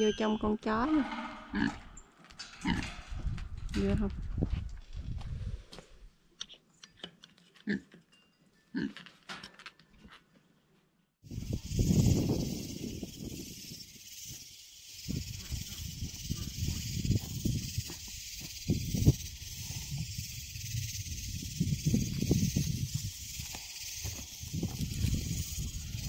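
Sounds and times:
steady high hiss: 11.3 - 26.0.

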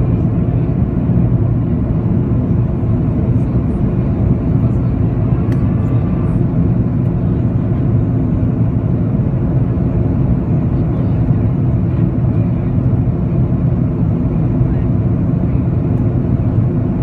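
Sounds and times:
aircraft cabin engine rumble: 0.0 - 17.0.

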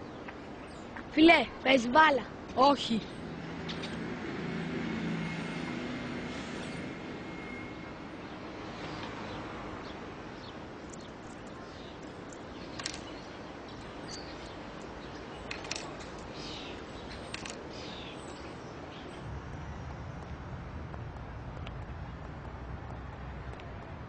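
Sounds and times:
small birds chirping: 0.0 - 4.1, 8.2 - 19.3
sharp clicks: 10.9 - 13.2, 15.4 - 16.3, 17.1 - 17.7.

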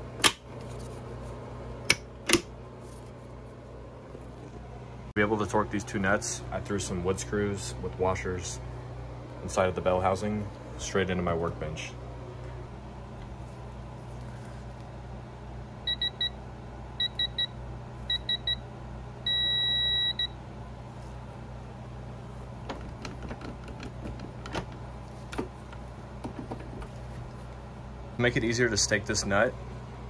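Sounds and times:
long steady beep: 15.8 - 16.4, 17.0 - 18.6, 19.2 - 20.4.

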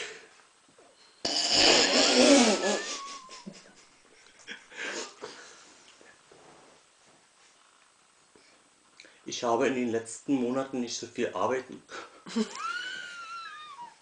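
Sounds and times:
man laughing wheezily: 1.3 - 5.5, 12.0 - 14.0
man giggling stifled: 1.7 - 5.4, 12.0 - 14.0.

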